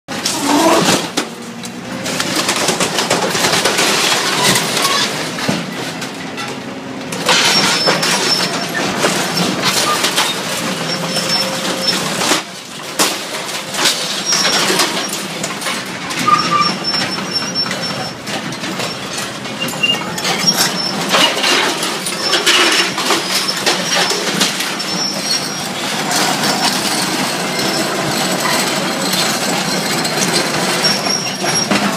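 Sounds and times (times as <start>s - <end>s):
excavator engine running: 0.1s - 31.9s
squeals of bending metal: 7.3s - 12.2s, 14.0s - 15.3s, 16.0s - 31.9s.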